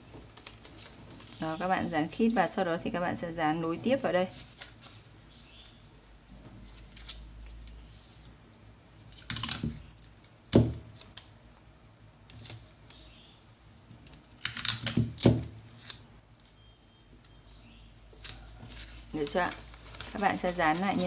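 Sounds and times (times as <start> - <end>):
paper crinkling and clicking: 0.1 - 1.4, 4.4 - 5.8, 6.6 - 7.8, 18.1 - 21.0.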